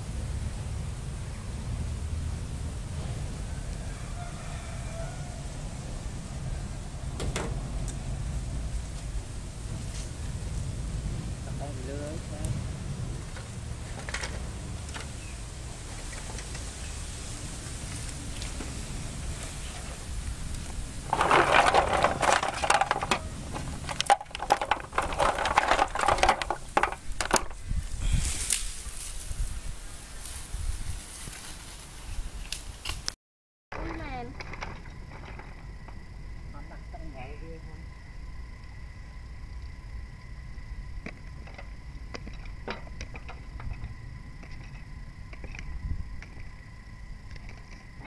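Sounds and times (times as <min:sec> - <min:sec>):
low steady rumble: 0:00.0 - 0:27.1
clam shells clattering in water: 0:21.1 - 0:27.5.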